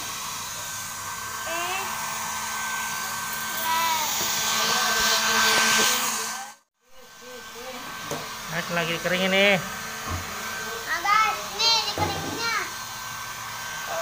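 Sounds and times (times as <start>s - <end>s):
hair dryer running: 0.0s - 14.0s.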